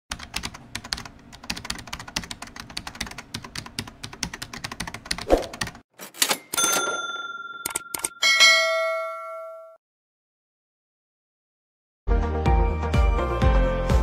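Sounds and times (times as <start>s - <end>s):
bell-like ding: 6.4s - 9.8s.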